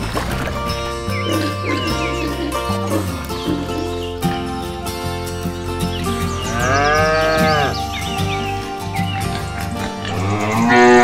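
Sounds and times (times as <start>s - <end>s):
background music: 0.0s - 11.0s
cow mooing: 6.5s - 7.9s, 9.4s - 11.0s.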